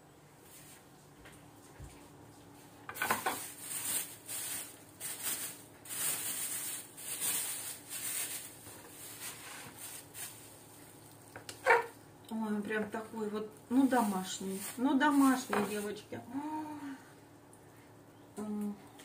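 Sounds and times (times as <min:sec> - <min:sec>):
plastic bag crinkling: 0:02.9 - 0:12.0, 0:12.9 - 0:16.2.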